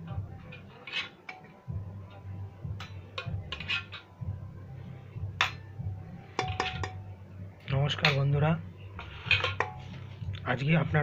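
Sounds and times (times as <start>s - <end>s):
metal ladle scraping a pot: 0.4s - 4.2s, 6.2s - 7.0s, 7.9s - 10.3s.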